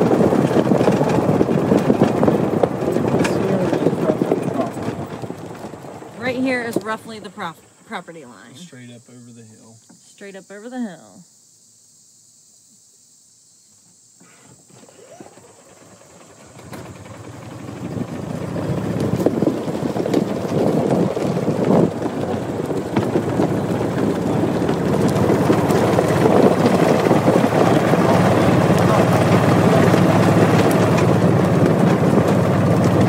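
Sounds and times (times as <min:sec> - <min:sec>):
wind on microphone: 0:00.0 - 0:05.7, 0:17.8 - 0:33.0.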